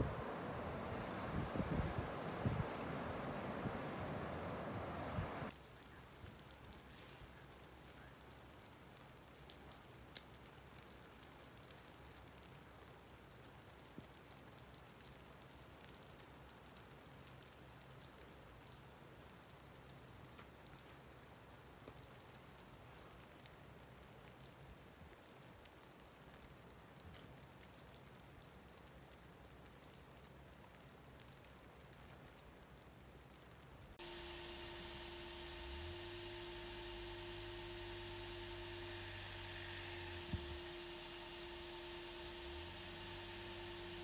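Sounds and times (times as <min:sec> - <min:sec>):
faint steady hiss: 0:00.0 - 0:44.0
light ticks: 0:05.5 - 0:12.7, 0:13.3 - 0:33.7.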